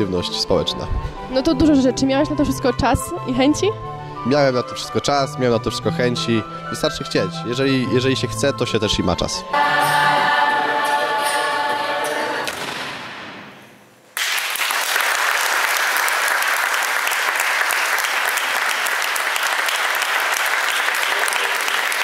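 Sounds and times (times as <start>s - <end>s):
voices singing chord: 7.2s - 12.5s
audience applause: 14.2s - 22.0s.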